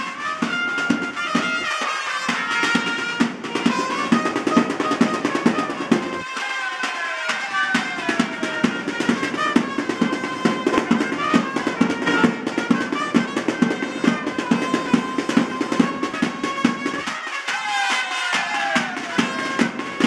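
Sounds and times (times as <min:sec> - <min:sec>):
brass horn melody: 0:00.0 - 0:20.0
snare drum: 0:00.0 - 0:20.0
bass drum: 0:08.1 - 0:17.0.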